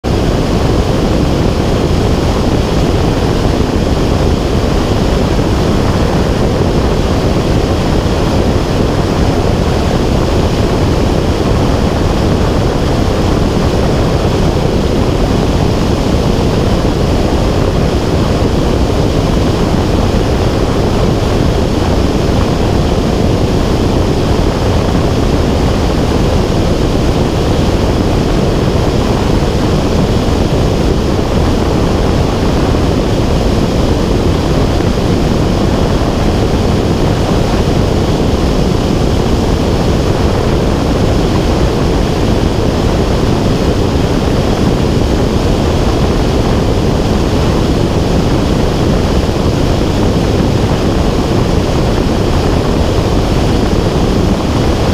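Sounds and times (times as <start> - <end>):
low rushing flight noise: 0.0 - 54.9.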